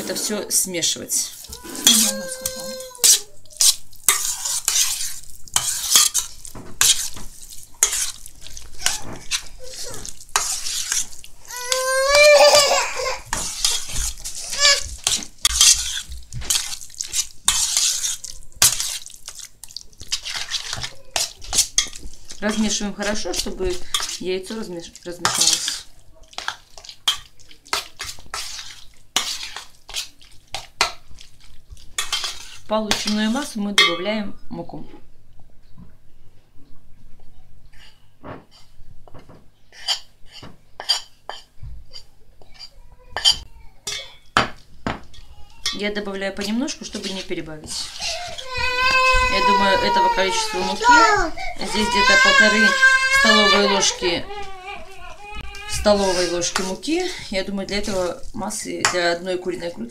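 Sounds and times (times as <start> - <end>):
metal spoon scraping steel bowl: 0.0 - 7.2, 7.8 - 24.6, 25.2 - 30.7, 32.0 - 34.0, 39.7 - 44.2, 45.1 - 48.5, 49.3 - 51.0, 55.5 - 59.2.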